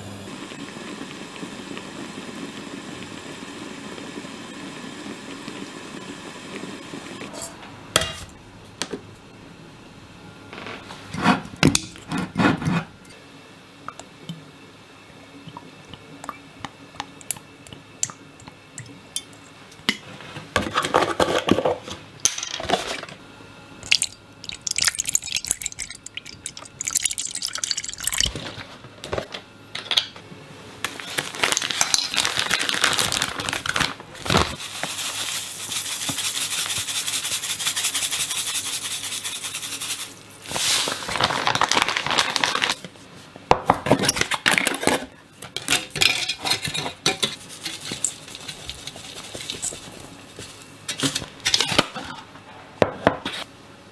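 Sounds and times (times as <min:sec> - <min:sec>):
plastic packet crinkling: 0:30.9 - 0:35.6, 0:40.4 - 0:42.8.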